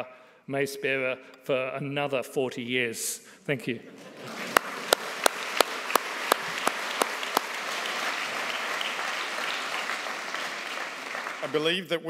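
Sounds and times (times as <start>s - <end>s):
audience applauding: 4.0s - 11.9s
sharp evenly spaced claps: 4.2s - 11.7s.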